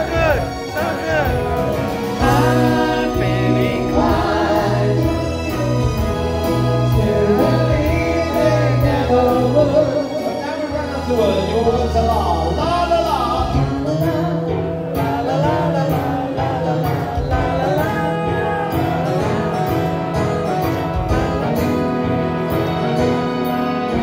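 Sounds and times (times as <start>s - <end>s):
drum beat: 0.0s - 5.2s
bass line: 0.0s - 15.8s.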